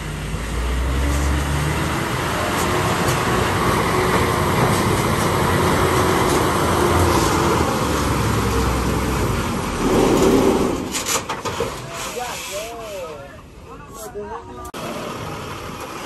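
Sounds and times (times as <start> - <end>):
diesel truck engine under load: 0.0 - 12.0, 14.8 - 16.0.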